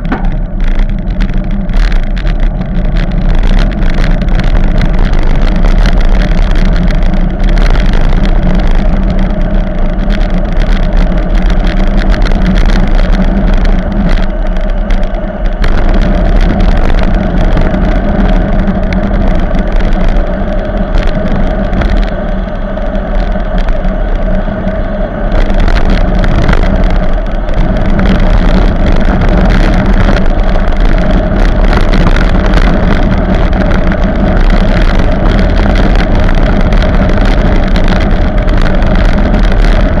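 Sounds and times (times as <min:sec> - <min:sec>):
bike knocking over rough road: 0:00.0 - 0:08.4
road rumble: 0:00.0 - 0:40.0
wind rush on microphone: 0:00.0 - 0:40.0.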